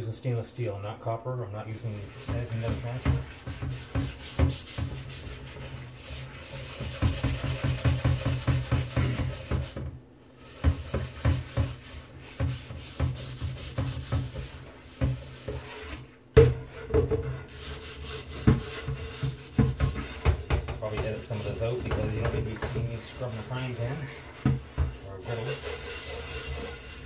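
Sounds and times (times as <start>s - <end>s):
scrubber scouring a pan: 1.6s - 27.0s.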